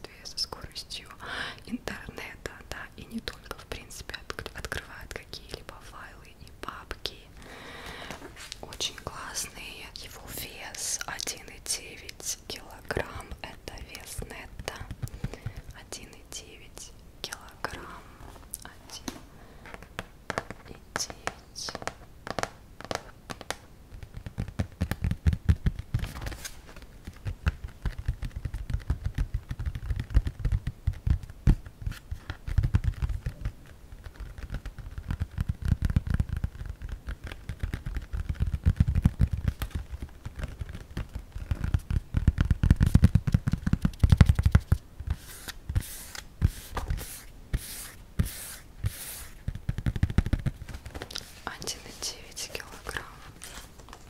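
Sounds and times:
brief scratching strokes: 0:45.1 - 0:49.4.

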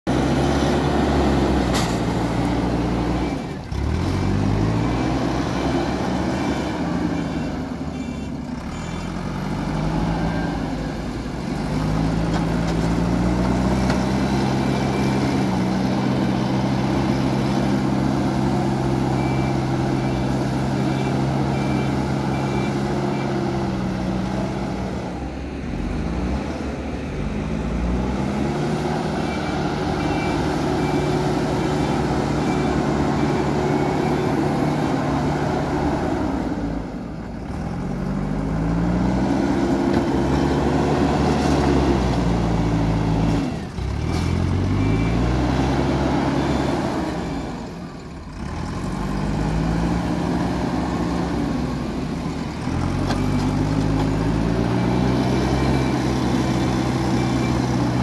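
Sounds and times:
diesel engine under load: 0:00.0 - 0:58.0.

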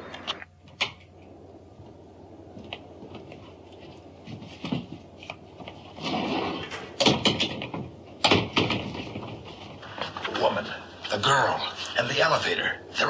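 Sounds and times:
steady low hum: 0:00.0 - 0:13.0
elevator doors opening: 0:05.9 - 0:10.6.

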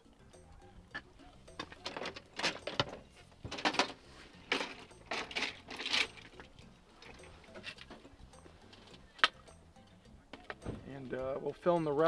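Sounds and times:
metal frame clattering on pavement: 0:01.5 - 0:08.0.

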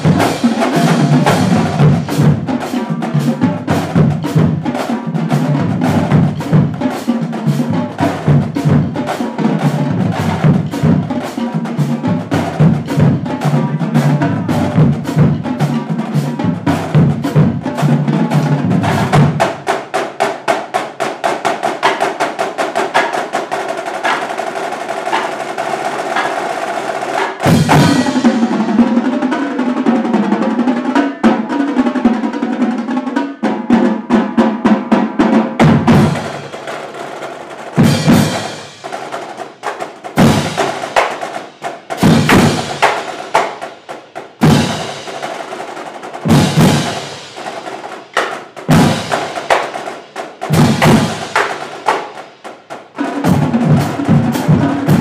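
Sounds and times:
marching drumline playing: 0:00.0 - 0:55.0
loud unison drum hits: 0:27.4 - 0:28.5, 0:35.6 - 0:37.0, 0:37.8 - 0:39.4, 0:40.1 - 0:43.8, 0:44.4 - 0:45.4, 0:46.3 - 0:52.2.

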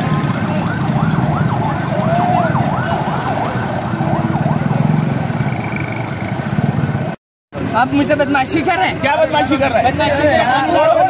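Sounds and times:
electronic siren warbling: 0:00.0 - 0:06.3.

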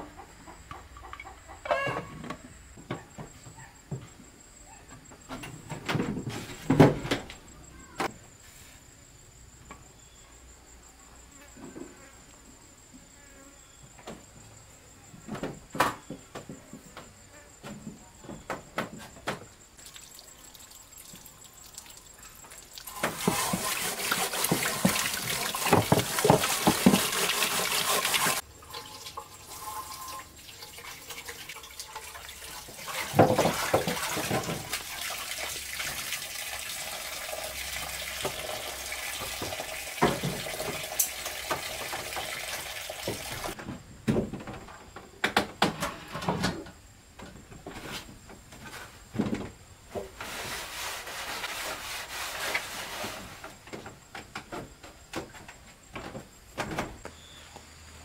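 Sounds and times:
tap water running into sink: 0:19.9 - 0:43.6
frying pan scrubbing: 0:22.9 - 0:31.5, 0:50.2 - 0:53.4.

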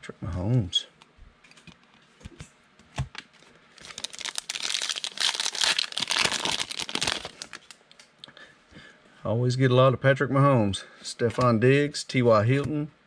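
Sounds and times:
foil wrapper crinkling: 0:03.8 - 0:07.8.

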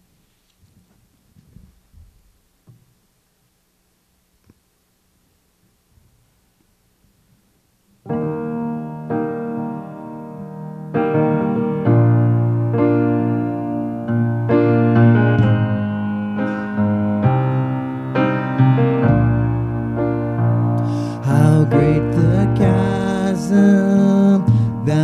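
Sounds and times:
grand piano playing chords: 0:08.0 - 0:25.0.

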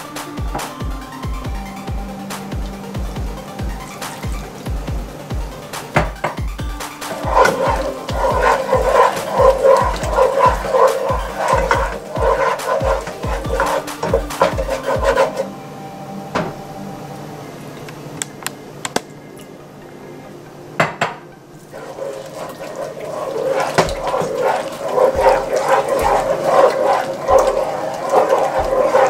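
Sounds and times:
wooden spoon scraping pot: 0:07.0 - 0:15.4, 0:21.7 - 0:29.0.

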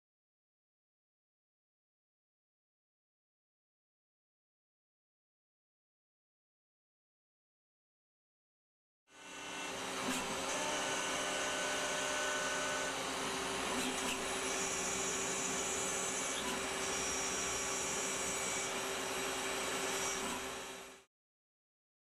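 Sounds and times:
high machine whine: 0:09.2 - 0:21.0
machine hum and hiss: 0:09.2 - 0:21.0.

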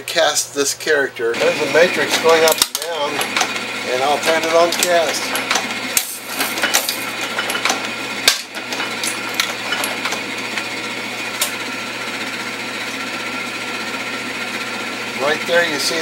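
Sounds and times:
casting machine mechanical clatter: 0:01.8 - 0:10.7.

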